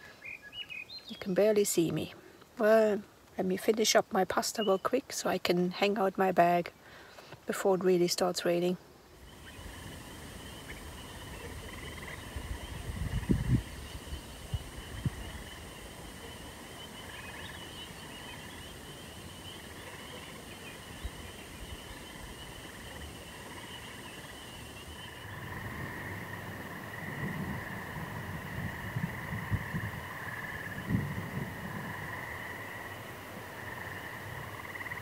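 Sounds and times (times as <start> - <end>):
chorus of distant calling animals: 9.2 - 35.0.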